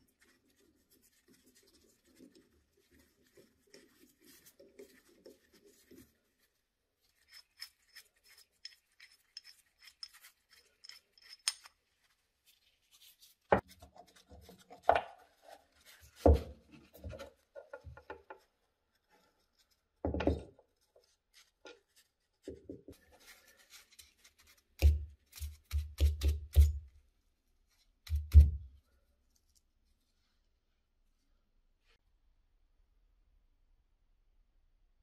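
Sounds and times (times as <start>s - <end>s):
small metal parts clicking: 7.3s - 11.8s.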